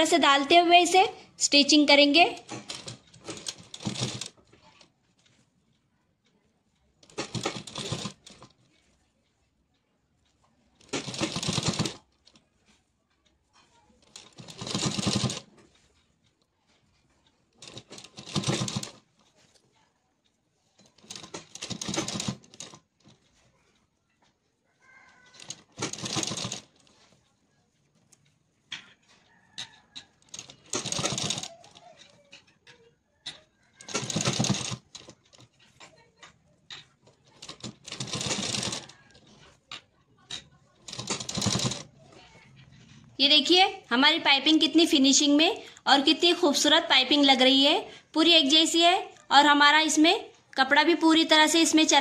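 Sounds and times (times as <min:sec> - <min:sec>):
sewing machine stitching: 0:01.6 - 0:05.5, 0:07.0 - 0:08.9, 0:10.3 - 0:12.9, 0:13.5 - 0:19.6, 0:20.7 - 0:24.3, 0:24.9 - 0:27.2, 0:28.1 - 0:43.1.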